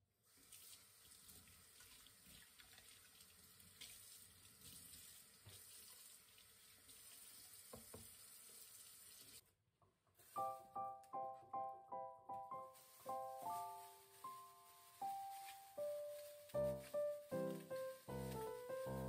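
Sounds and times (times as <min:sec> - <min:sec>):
faucet running into metal sink: 0:00.4 - 0:09.4.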